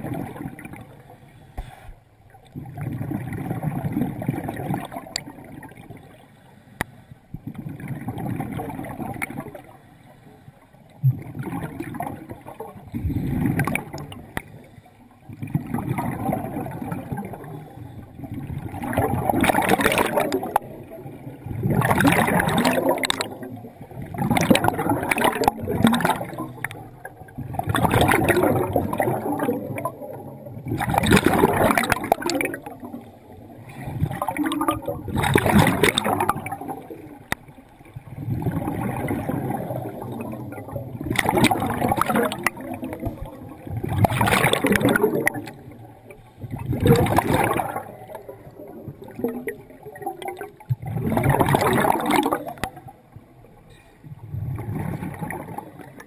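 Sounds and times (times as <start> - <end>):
exhaled bubbles gurgling: 0.0 - 6.3, 7.3 - 9.9, 10.8 - 56.0.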